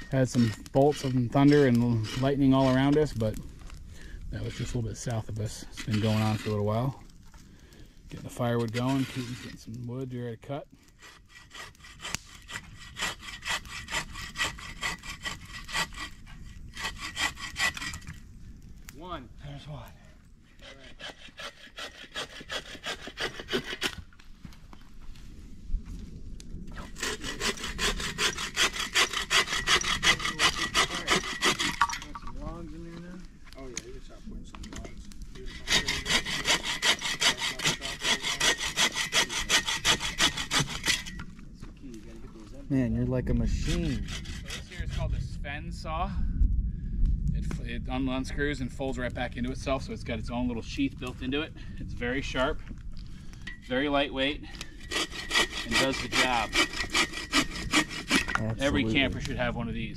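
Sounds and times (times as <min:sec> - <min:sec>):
bow saw cutting firewood: 0:00.0 - 0:07.4, 0:08.0 - 0:18.3, 0:20.5 - 0:24.3, 0:26.7 - 0:33.6, 0:34.5 - 0:41.4, 0:43.3 - 0:45.3, 0:53.3 - 0:59.9.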